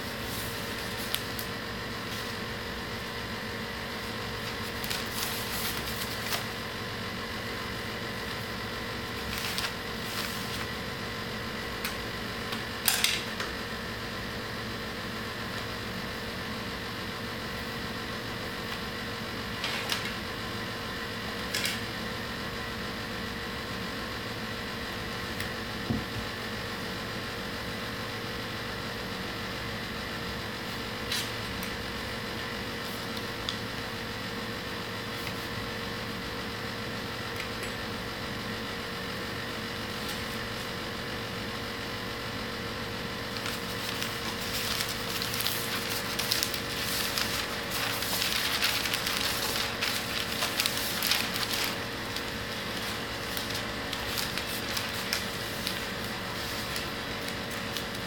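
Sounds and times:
paper rustling: 0.0s - 2.5s, 3.8s - 6.7s, 8.0s - 10.9s, 19.6s - 20.2s, 43.2s - 58.0s
background hum: 37.2s - 58.0s.

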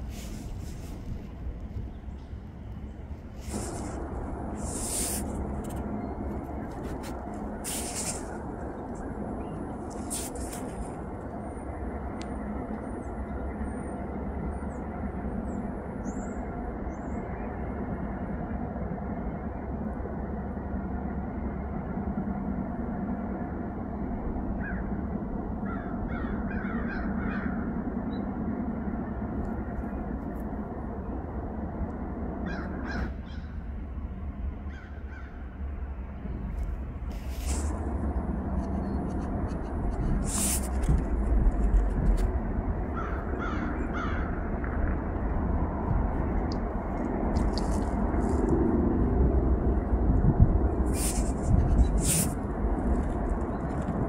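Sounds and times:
diesel locomotives rumbling: 0.0s - 54.0s
crow cawing: 25.7s - 27.6s, 32.4s - 33.5s, 42.9s - 44.3s.

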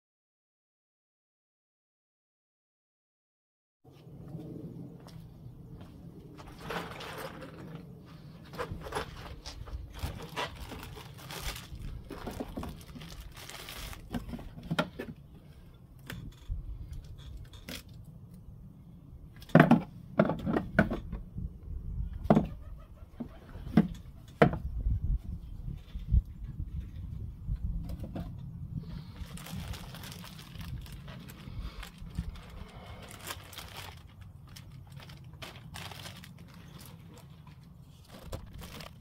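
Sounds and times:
plastic wrapping crinkling: 8.8s - 14.5s, 29.2s - 39.0s.

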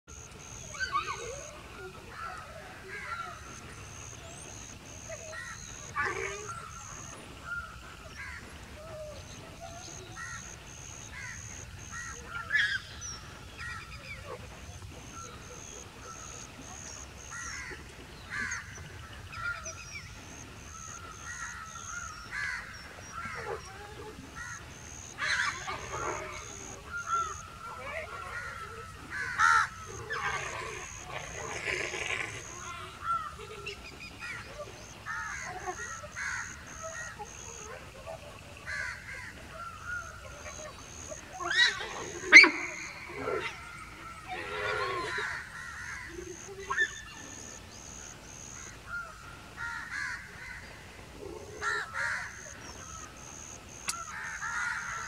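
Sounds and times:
dholes yelping and chattering: 0.2s - 49.6s
wild dogs squealing: 5.0s - 8.3s, 23.0s - 33.4s, 34.2s - 48.5s.

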